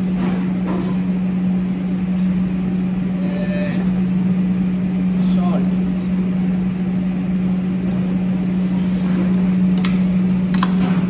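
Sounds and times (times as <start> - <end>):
kitchen equipment drone: 0.0 - 11.0.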